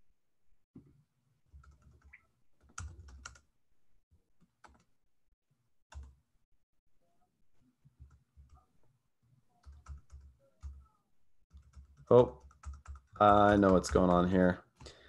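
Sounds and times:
computer keyboard keystrokes: 11.5 - 14.1.

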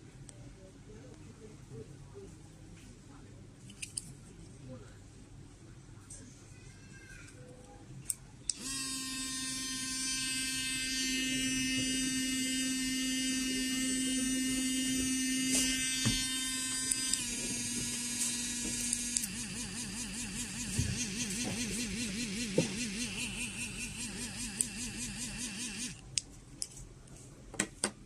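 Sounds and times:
electric toothbrush buzzing: 8.6 - 26.0.

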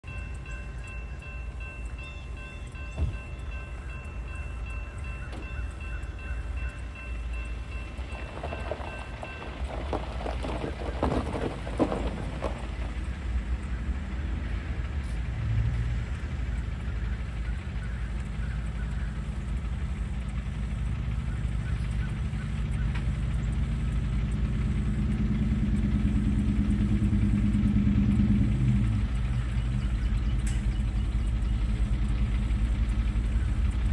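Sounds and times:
crossing warning bell ringing: 0.0 - 33.9
diesel engine idling: 0.0 - 33.9
steady low rumble: 0.0 - 33.9
tires crunching over gravel: 7.5 - 15.3.

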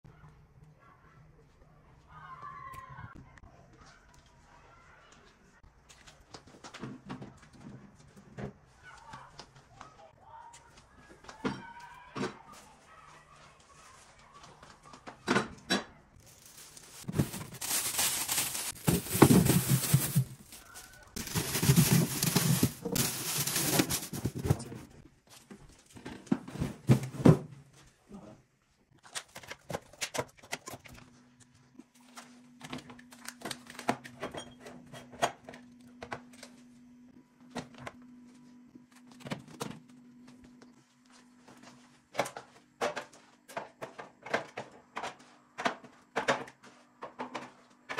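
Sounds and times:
plastic rustling: 16.2 - 24.9.

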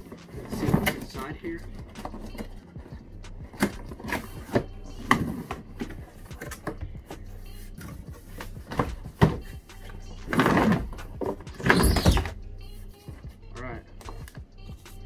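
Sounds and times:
cardboard lid scraping: 10.2 - 12.4.

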